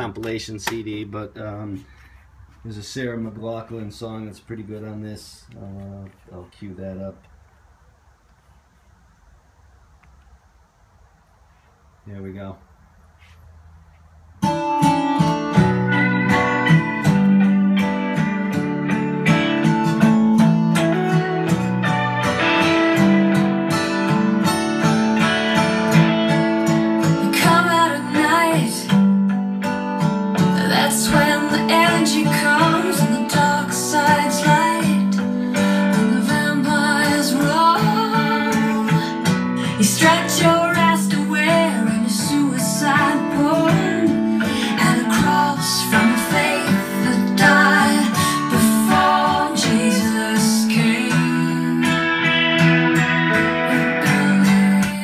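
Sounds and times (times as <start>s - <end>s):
acoustic guitar song with singing: 14.4s - 55.0s.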